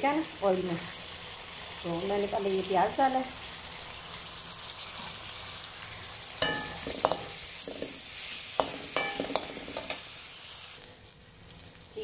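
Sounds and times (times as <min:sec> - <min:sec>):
onions sizzling in hot oil: 0:00.0 - 0:12.0
metal spoon clinking against pan: 0:06.4 - 0:07.9, 0:08.6 - 0:10.0.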